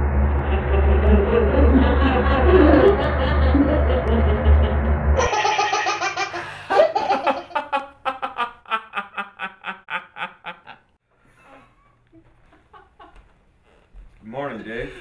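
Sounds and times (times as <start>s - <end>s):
young man laughing loudly: 0.4s - 10.9s, 12.6s - 13.2s.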